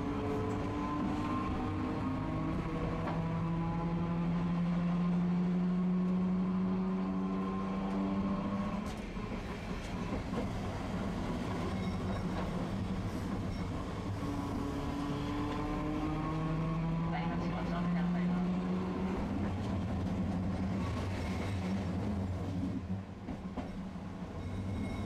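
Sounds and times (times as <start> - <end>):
streetcar motor whine: 0.0 - 4.5, 8.6 - 25.0
wheels rumbling on rails: 5.4 - 25.0.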